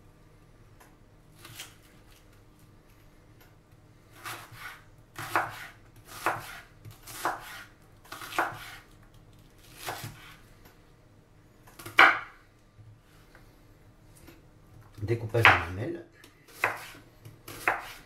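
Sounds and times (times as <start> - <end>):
knife slicing onion on wooden board: 4.1 - 8.9, 9.6 - 10.4, 11.8 - 12.4, 16.5 - 18.0.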